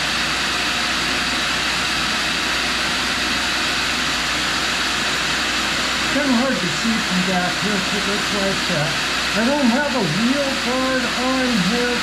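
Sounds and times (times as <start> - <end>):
grinder wheel spinning: 0.0 - 12.0
shop vacuum hissing: 0.0 - 12.0.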